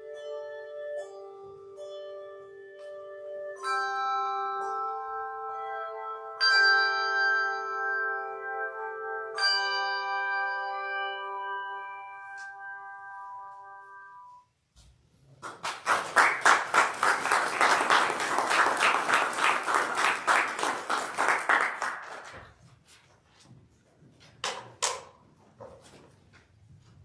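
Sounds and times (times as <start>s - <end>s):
handbells chord ringing: 0.0s - 14.1s
congregation applauding: 15.4s - 22.6s.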